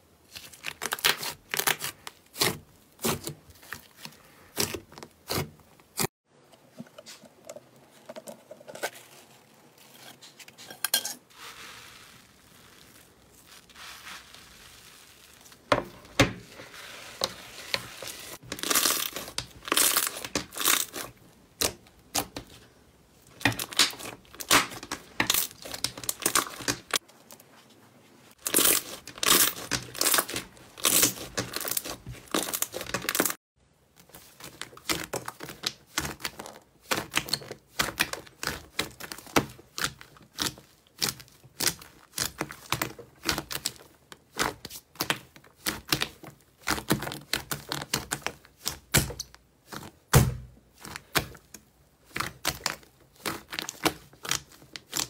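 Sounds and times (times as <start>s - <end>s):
slime crackling and popping: 17.8s - 22.6s, 23.3s - 27.0s, 28.4s - 33.4s, 34.1s - 55.0s.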